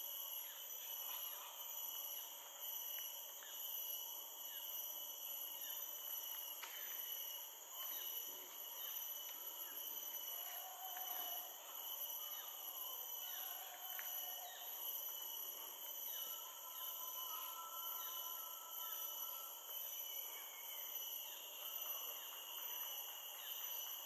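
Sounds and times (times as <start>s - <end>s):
insect chorus: 0.0s - 24.0s.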